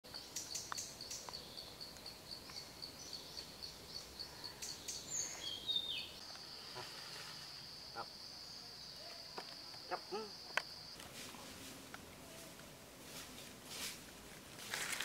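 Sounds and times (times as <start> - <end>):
insect high-pitched pulsing call: 0.2 - 11.0.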